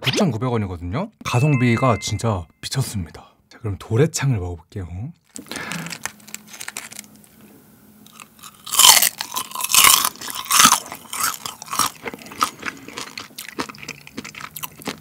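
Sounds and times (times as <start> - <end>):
crunching while chewing fried food: 5.2 - 15.0.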